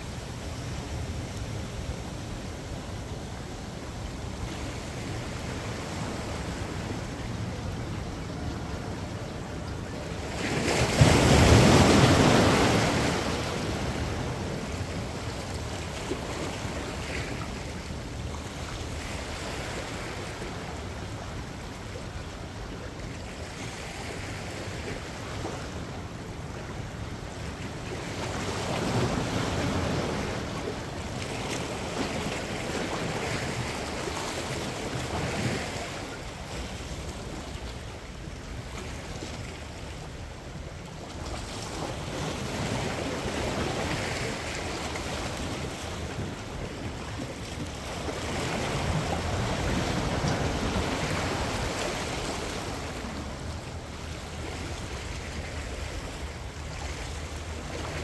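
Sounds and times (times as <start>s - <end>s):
waves washing against rocks: 41.9s - 54.4s.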